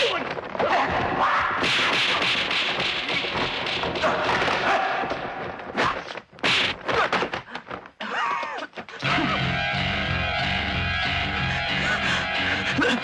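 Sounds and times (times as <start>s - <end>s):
punch and strike impacts: 5.7s - 7.3s
music: 9.0s - 13.0s.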